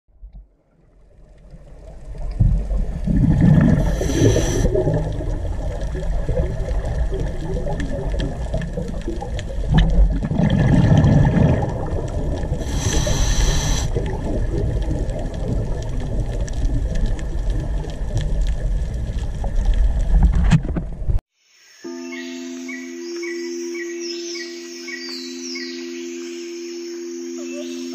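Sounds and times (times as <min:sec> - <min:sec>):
low underwater rumble: 0:00.1 - 0:21.2
exhaled bubbles gurgling: 0:01.0 - 0:21.2
regulator inhalation hiss: 0:03.8 - 0:04.8, 0:12.6 - 0:14.0.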